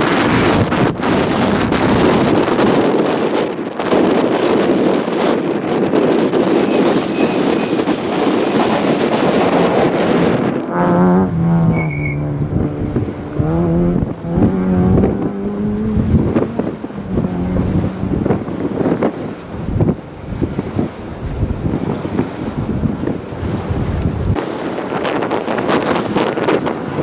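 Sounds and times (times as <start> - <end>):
rally car passing: 9.5 - 24.8
car engine revving through gears: 10.5 - 19.1.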